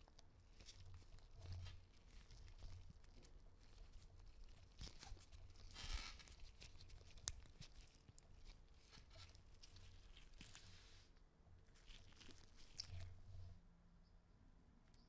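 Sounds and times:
gloved fingers rustling: 0:00.0 - 0:11.1, 0:11.7 - 0:13.4.

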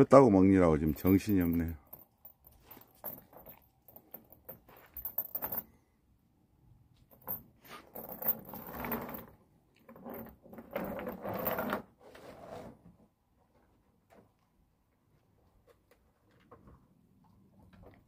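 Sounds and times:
metal chain rattling on wooden boards: 0:00.9 - 0:05.8, 0:07.1 - 0:11.8.

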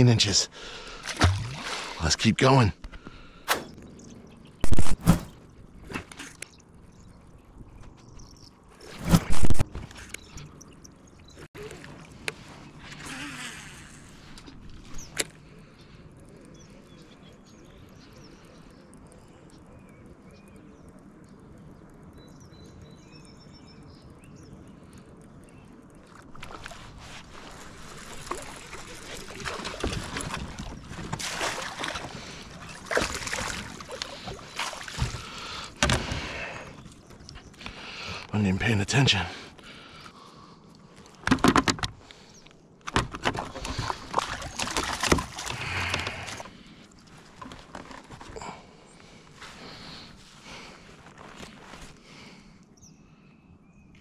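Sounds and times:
water sloshing: 0:00.7 - 0:02.2, 0:26.0 - 0:38.1, 0:43.1 - 0:48.4.

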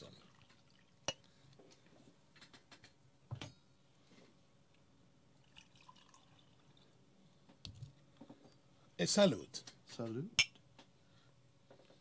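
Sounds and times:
coffee trickling into glass cup: 0:00.1 - 0:01.2, 0:05.4 - 0:07.0.

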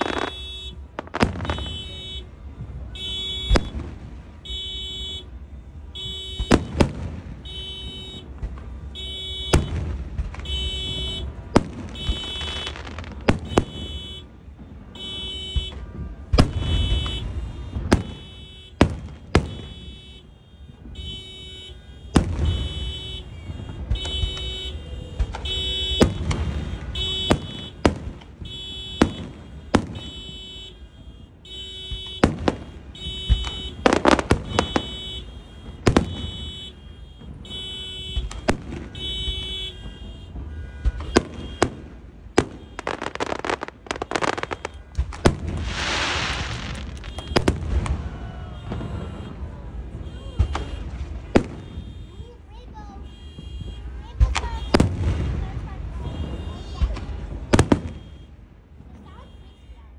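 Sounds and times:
car alarm beeping: 0:00.0 - 0:03.8, 0:04.4 - 0:06.8, 0:07.4 - 0:45.0, 0:45.7 - 0:47.6, 0:48.6 - 0:54.8, 0:57.6 - 0:58.4
firework bangs: 0:00.0 - 0:59.6.

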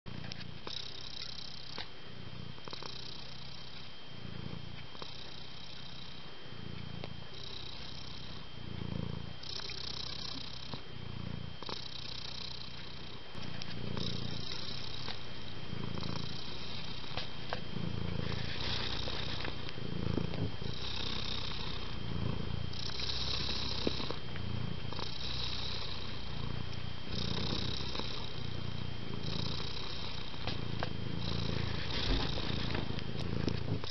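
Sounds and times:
cat purring: 0:00.1 - 0:33.9
thin steady high tone: 0:00.3 - 0:33.9.

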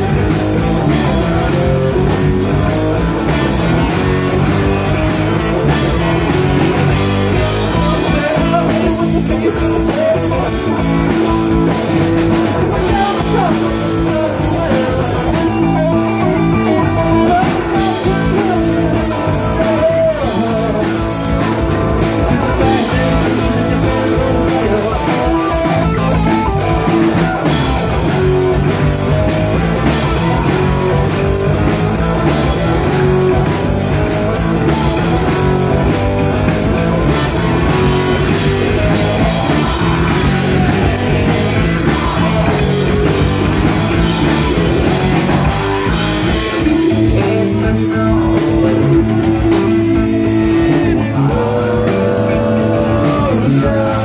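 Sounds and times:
drum kit: 0:00.0 - 0:54.0
electric bass: 0:00.0 - 0:54.0
electric guitar: 0:00.0 - 0:54.0.

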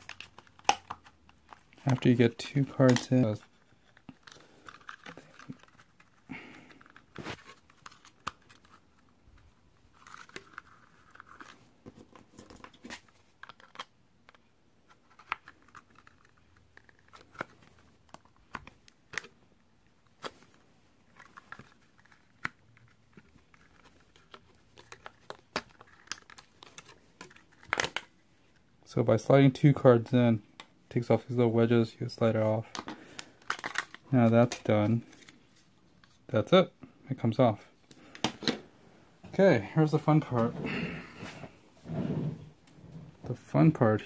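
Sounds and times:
plastic cards scraping housing: 0:00.0 - 0:09.2, 0:21.1 - 0:28.1.

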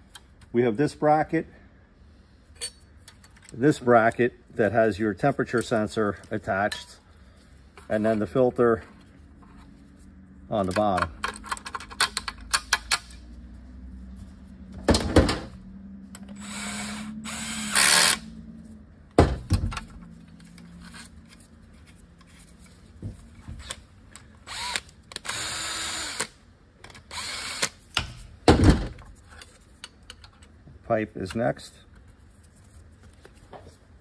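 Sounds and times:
cordless drill driving bolts: 0:16.3 - 0:18.2, 0:24.4 - 0:26.3, 0:27.0 - 0:27.8.

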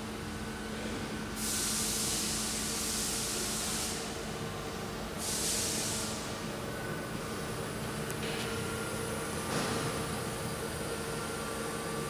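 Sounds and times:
hiss bursts: 0:01.4 - 0:04.1, 0:05.2 - 0:06.3.

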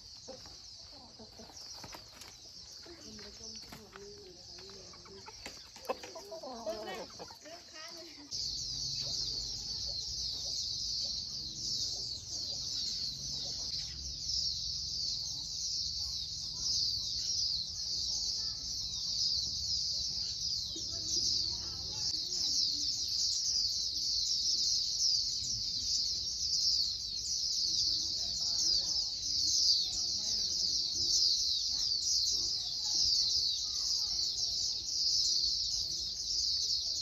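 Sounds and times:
many small birds chirping: 0:00.0 - 0:37.0.

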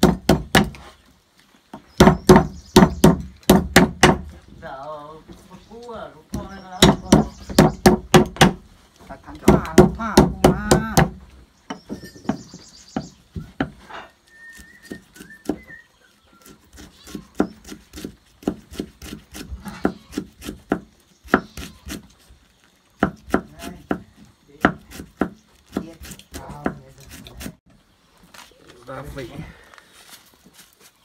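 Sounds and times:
knife chopping on wooden board: 0:02.0 - 0:04.3, 0:06.4 - 0:08.6, 0:14.8 - 0:15.7, 0:16.4 - 0:22.0, 0:23.0 - 0:27.6.

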